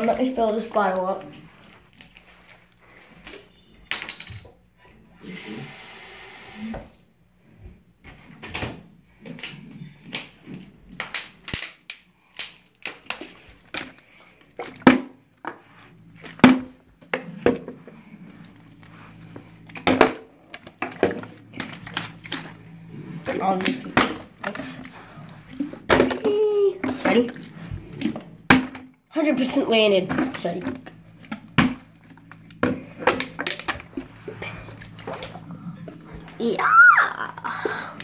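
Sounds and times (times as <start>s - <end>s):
water running from a tap: 5.2s - 6.9s.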